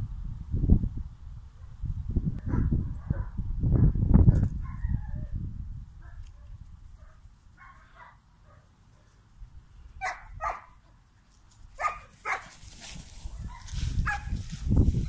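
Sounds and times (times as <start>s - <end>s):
puppies barking in high yips: 10.0s - 10.8s, 11.7s - 12.6s, 13.4s - 14.4s.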